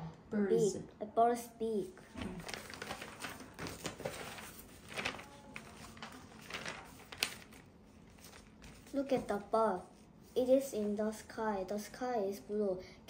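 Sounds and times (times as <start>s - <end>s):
paper pages rustling: 2.1s - 11.0s
paper snapping: 2.4s - 8.8s.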